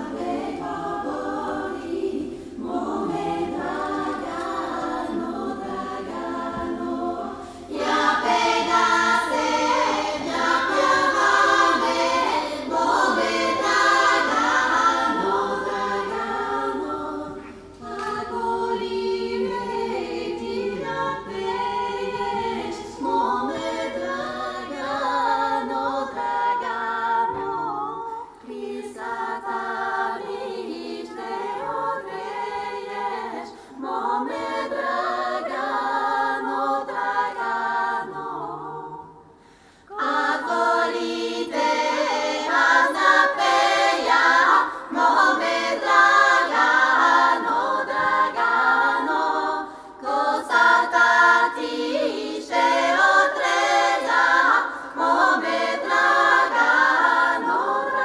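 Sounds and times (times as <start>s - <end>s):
women singing a cappella in harmony: 0.0s - 58.0s.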